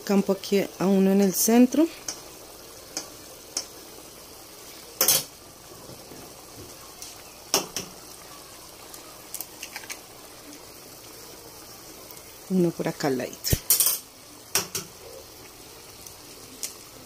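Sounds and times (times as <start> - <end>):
sauce simmering and bubbling: 0.0 - 17.0
egg cracking: 6.9 - 10.8
utensil tapping metal pot: 7.5 - 8.0, 13.5 - 15.0.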